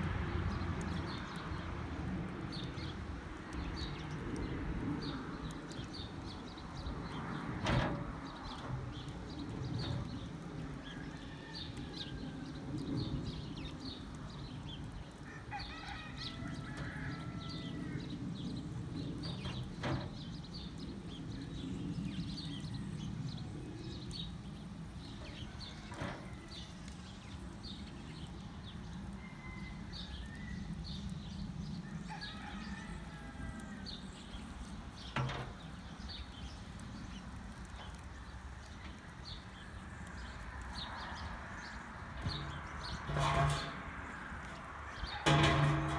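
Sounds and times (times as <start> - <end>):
rooster crowing: 10.9 - 12.6, 15.2 - 18.1, 29.2 - 30.6, 31.9 - 33.9.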